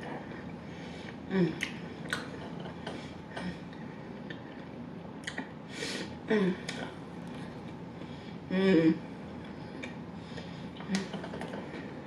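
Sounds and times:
person chewing with lip smacks: 1.1 - 2.6, 4.2 - 5.6.

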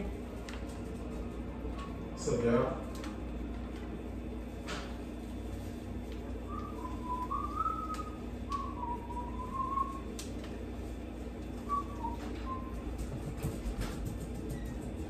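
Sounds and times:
low hum: 0.0 - 15.0
person whistling a tune: 6.5 - 10.1, 11.6 - 13.0.

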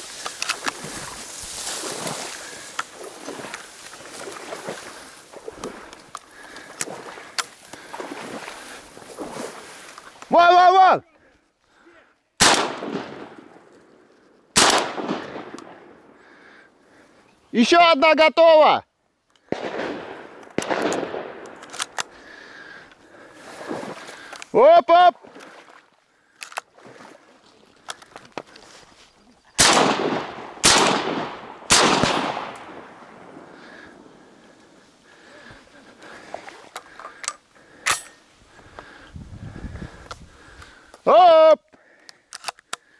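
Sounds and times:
shotgun shots echoing: 12.4 - 13.5, 14.6 - 15.9, 19.5 - 21.5, 29.6 - 33.3.

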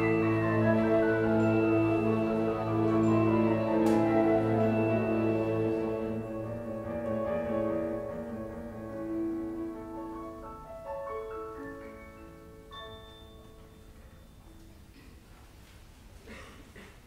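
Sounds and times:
flute: 0.0 - 8.0
strings: 0.0 - 14.2
piano: 0.0 - 16.9.

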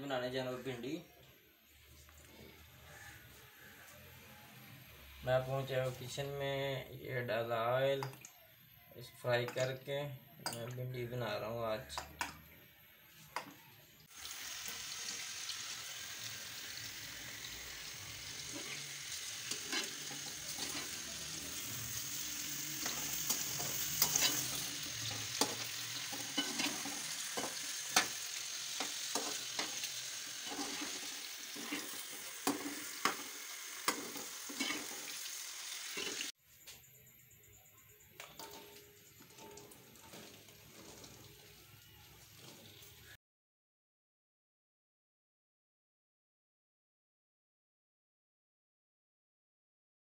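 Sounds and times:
hot oil sizzling with crackles: 11.8 - 36.4, 38.2 - 43.2.

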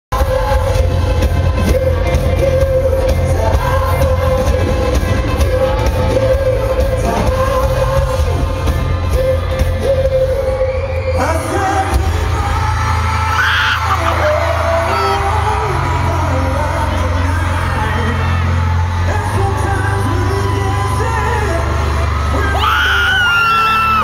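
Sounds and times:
heavy bass: 0.1 - 24.0
live pop band: 0.1 - 24.0
man singing: 0.1 - 24.0.

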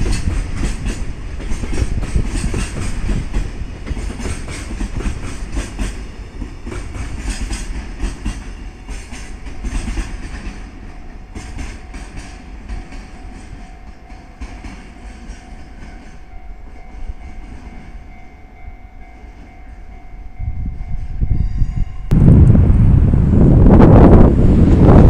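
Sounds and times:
freight train wheels clattering: 0.0 - 18.0.

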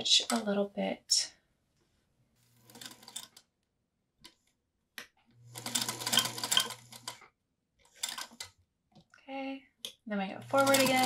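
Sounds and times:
sewing machine stitching: 2.6 - 3.4, 5.5 - 7.2, 7.9 - 8.6, 10.4 - 11.0.

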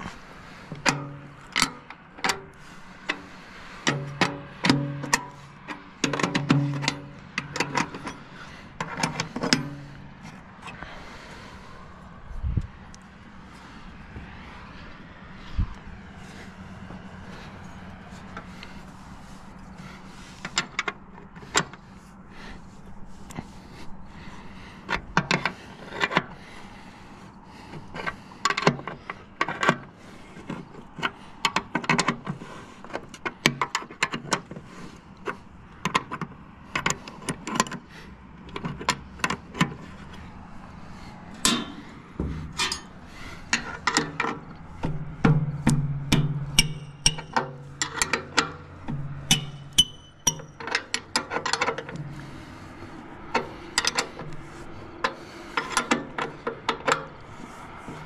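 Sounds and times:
wrench clicking on bolts: 0.0 - 10.0, 20.2 - 21.8, 24.8 - 26.4, 27.5 - 58.0.

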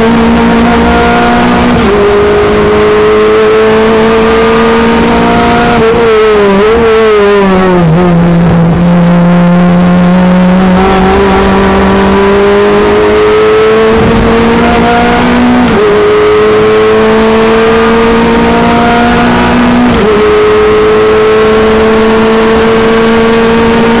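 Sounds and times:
race car engine at full throttle: 0.0 - 24.0.

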